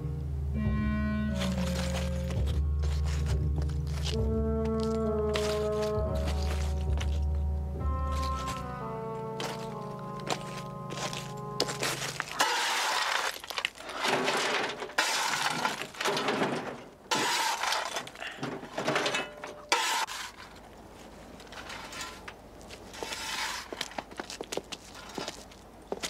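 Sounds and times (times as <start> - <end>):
low hum: 0.0 - 17.1
loud crashing and clattering: 12.3 - 20.1.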